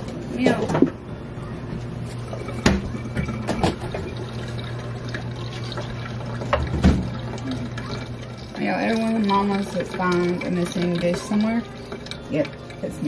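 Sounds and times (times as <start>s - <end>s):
milk pouring into a cup: 1.8s - 13.0s
cup and jug knocking on counter: 6.5s - 7.1s.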